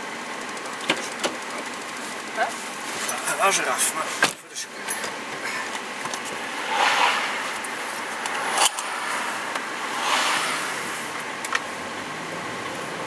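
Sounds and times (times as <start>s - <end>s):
road and wind noise in car: 0.0s - 13.0s
cars whooshing past: 5.9s - 13.0s.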